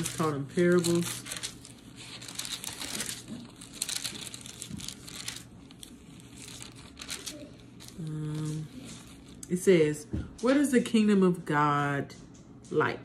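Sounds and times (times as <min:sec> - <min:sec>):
book pages rustling: 0:00.0 - 0:09.6.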